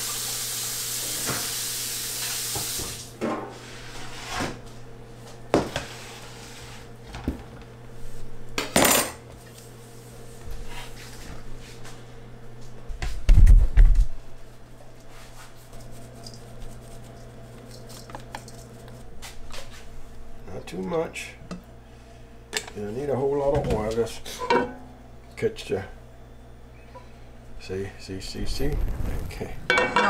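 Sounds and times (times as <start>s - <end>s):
water running at a sink: 0.0s - 3.2s
metal bowl clanking: 29.7s - 30.0s.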